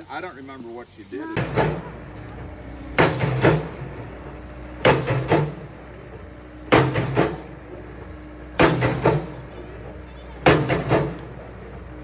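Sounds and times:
loader engine running: 0:00.0 - 0:12.0
post driver pounding fence post: 0:01.4 - 0:01.9, 0:03.0 - 0:03.9, 0:04.8 - 0:05.7, 0:06.7 - 0:07.5, 0:08.6 - 0:09.3, 0:10.4 - 0:11.4.

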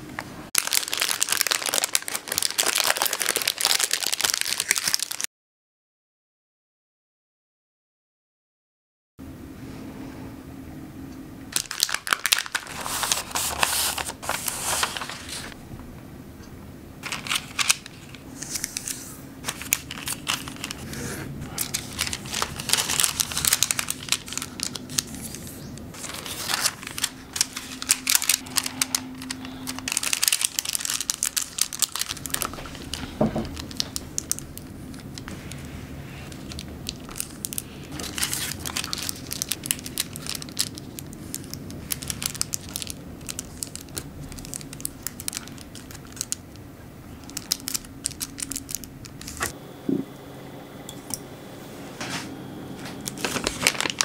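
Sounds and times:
wax paper crinkling: 0:00.6 - 0:05.3, 0:11.5 - 0:15.6, 0:17.0 - 0:49.6, 0:52.8 - 0:54.0.

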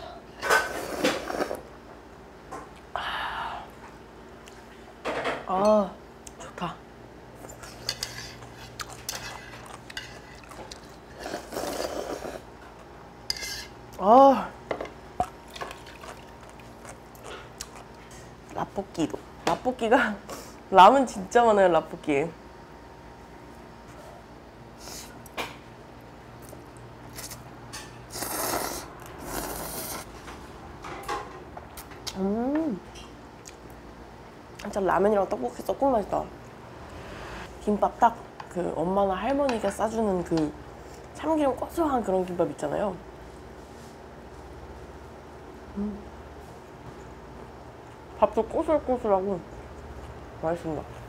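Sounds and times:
slurping noodles: 0:00.7 - 0:01.6, 0:11.1 - 0:12.5, 0:28.1 - 0:30.1.

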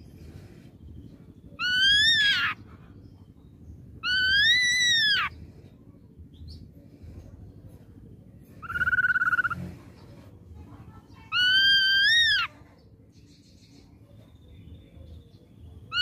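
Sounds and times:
bird whistled calls: 0:08.6 - 0:09.6.

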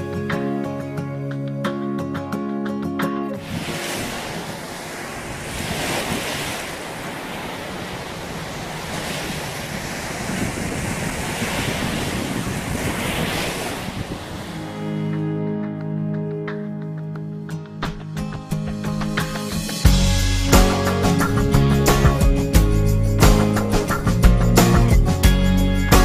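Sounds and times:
wind on microphone: 0:03.4 - 0:14.8
small waves breaking on sand: 0:03.4 - 0:14.9.

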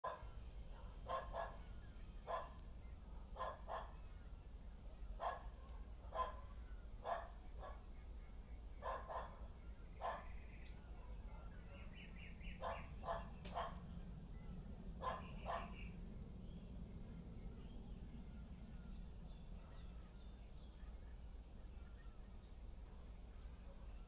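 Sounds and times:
dog barking: 0:00.0 - 0:04.0, 0:05.2 - 0:07.9, 0:08.8 - 0:12.0, 0:12.6 - 0:13.9, 0:15.0 - 0:15.8, 0:19.6 - 0:20.0.

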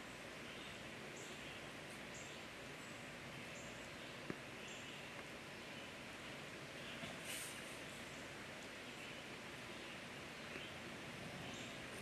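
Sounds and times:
background hiss: 0:00.0 - 0:12.0.

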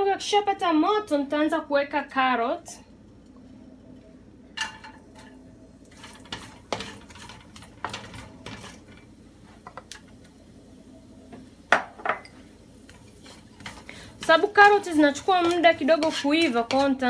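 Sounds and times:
wooden spoon scraping pan: 0:05.9 - 0:09.8, 0:12.8 - 0:17.0
glass bowl clinking on pan: 0:11.7 - 0:12.4.

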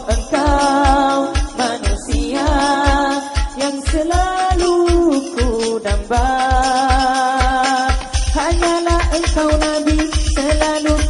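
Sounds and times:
devotional song with held notes: 0:00.0 - 0:11.0
steady low drumbeat: 0:00.0 - 0:11.0.

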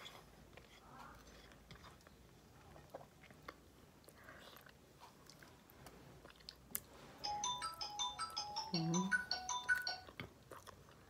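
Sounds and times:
person chewing: 0:00.0 - 0:07.0, 0:09.8 - 0:11.0
background music: 0:07.2 - 0:10.1.

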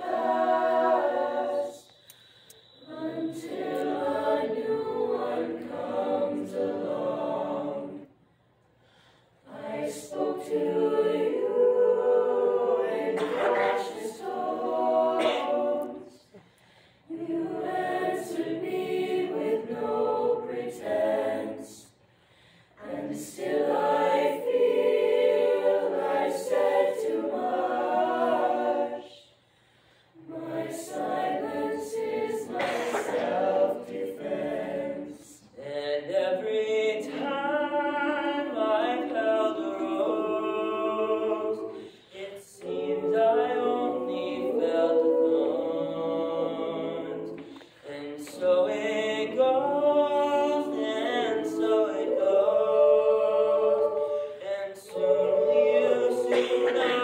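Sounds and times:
choir singing a cappella: 0:00.0 - 0:57.0
singers breathing: 0:01.8 - 0:03.0, 0:08.2 - 0:09.5, 0:16.2 - 0:17.1, 0:22.0 - 0:22.8, 0:29.3 - 0:30.3, 0:41.8 - 0:42.2, 0:47.4 - 0:47.8.

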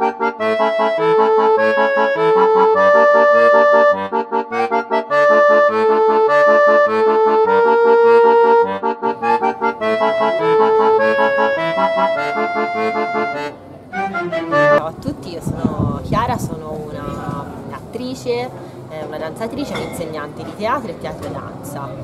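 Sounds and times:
instrumental music: 0:00.0 - 0:14.9.

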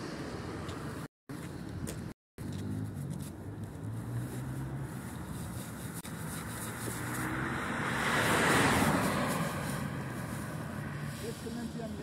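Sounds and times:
low traffic engine hum: 0:00.0 - 0:12.0
car tyres hissing: 0:04.1 - 0:12.0.

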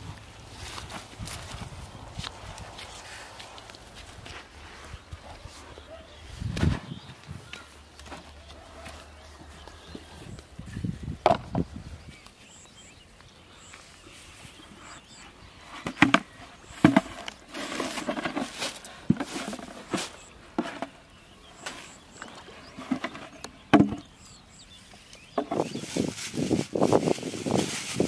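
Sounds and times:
plastic bag rustling: 0:25.6 - 0:28.0.

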